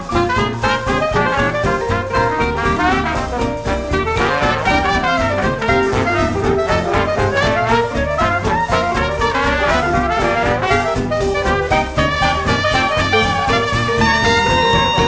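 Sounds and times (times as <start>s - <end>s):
upbeat brass jazz music: 0.0s - 15.0s.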